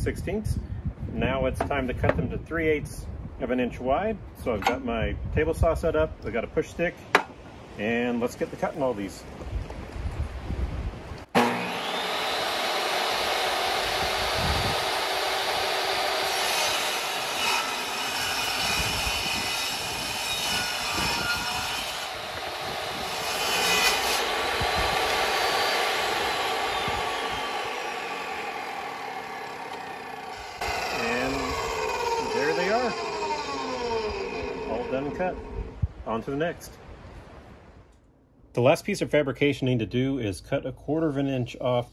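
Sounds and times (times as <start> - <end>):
table saw cutting wood: 11.3 - 35.7
saw winding down: 11.4 - 35.7.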